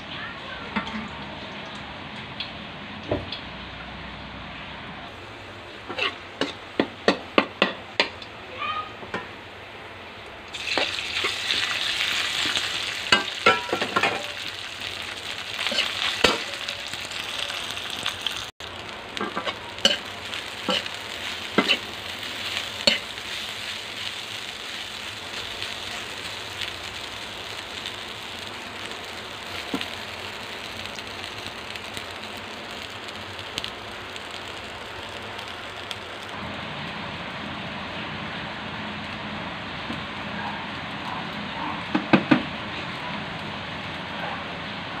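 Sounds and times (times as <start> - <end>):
food sizzling in hot oil: 5.2 - 9.3, 10.4 - 42.8
spatula scraping a wok: 5.8 - 6.6, 15.5 - 16.6, 19.2 - 24.8.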